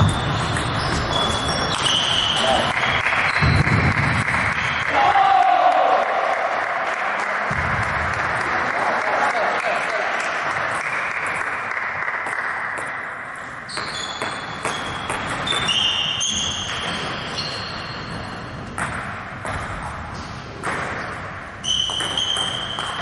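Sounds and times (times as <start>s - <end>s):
table tennis balls clicking: 0.0s - 4.6s, 20.6s - 23.0s.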